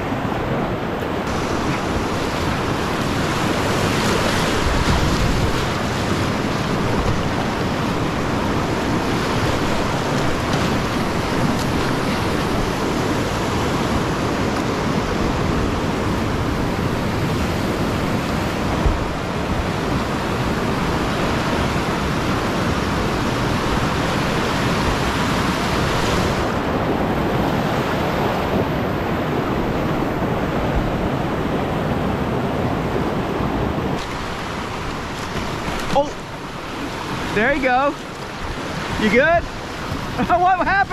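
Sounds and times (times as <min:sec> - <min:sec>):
whitewater rushing: 0:00.0 - 0:40.9.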